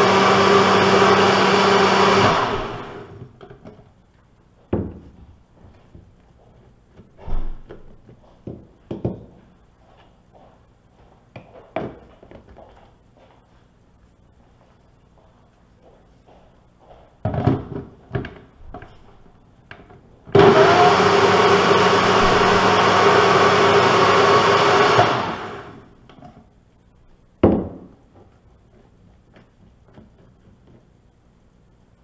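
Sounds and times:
blender motor running: 0.0s - 3.2s, 20.3s - 25.9s.

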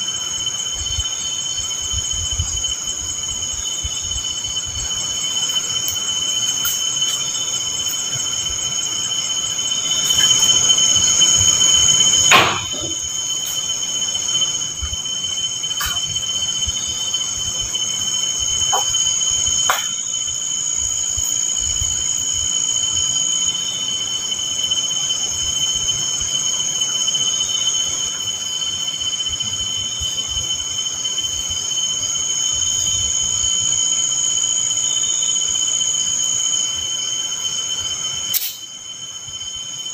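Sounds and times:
night insects chorus: 0.0s - 39.9s
loud knock: 12.3s - 13.0s.

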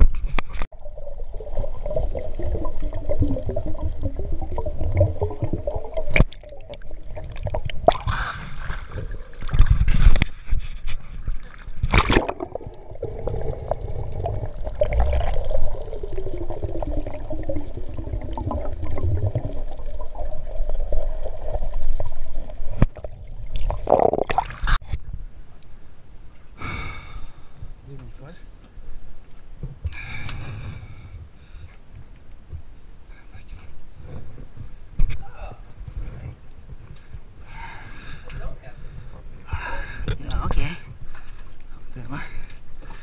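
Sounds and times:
underwater gurgling and bubbling: 0.7s - 24.8s
loud bursts of bubbles: 0.9s - 9.8s, 11.9s - 24.7s.

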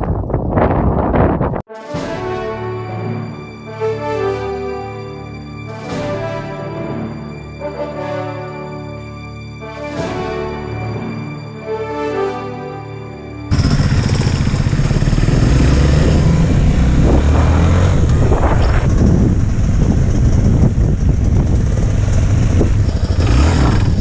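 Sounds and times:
background music: 1.7s - 13.5s
off-road motorcycle engine revving: 13.5s - 24.0s.

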